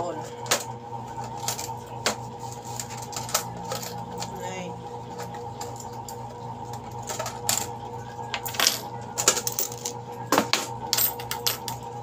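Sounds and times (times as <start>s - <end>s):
steady electrical hum: 0.0s - 12.0s
coins clinking on a counter: 2.8s - 4.4s, 8.4s - 11.8s.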